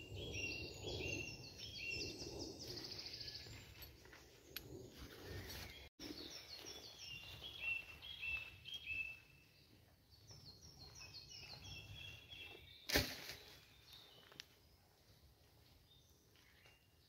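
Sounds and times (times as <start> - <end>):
songbird singing: 0.0 - 17.0.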